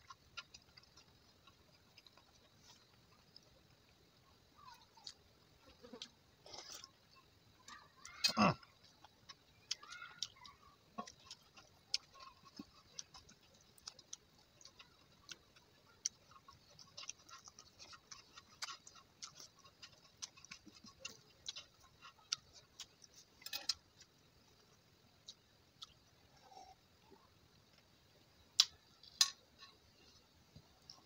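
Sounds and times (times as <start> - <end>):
wet chewing clicks and smacks: 0.0 - 4.0, 7.7 - 26.2, 28.6 - 29.4.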